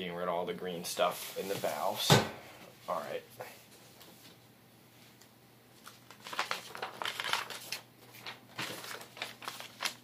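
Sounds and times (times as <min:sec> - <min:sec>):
paper rustling and crinkling: 0:05.8 - 0:10.0.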